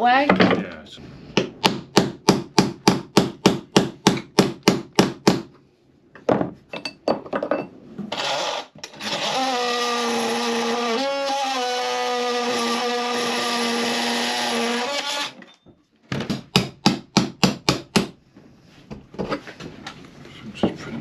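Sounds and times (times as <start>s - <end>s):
oscillating multi-tool cutting: 8.2s - 15.4s.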